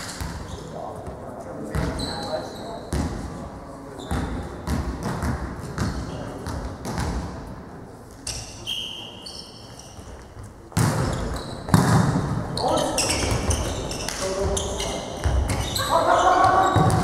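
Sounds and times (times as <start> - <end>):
volleyball bouncing on hall floor: 0.0 - 2.3, 2.9 - 3.4, 4.1 - 7.6, 9.9 - 17.0
short high squeaks: 8.3 - 10.0, 11.1 - 11.7.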